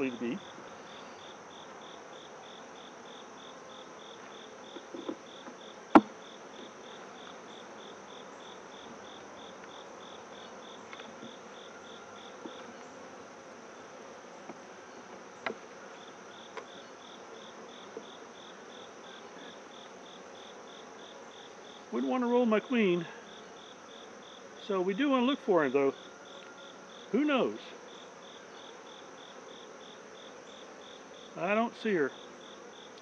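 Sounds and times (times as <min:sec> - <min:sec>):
bees buzzing: 0:00.0 - 0:33.0
cricket chirping: 0:00.0 - 0:33.0
hive tool knocking on wooden frame: 0:04.7 - 0:06.8, 0:14.4 - 0:15.8.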